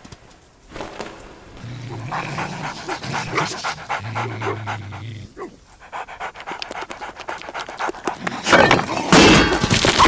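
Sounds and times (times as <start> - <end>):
dogs panting heavily: 2.0 - 8.7.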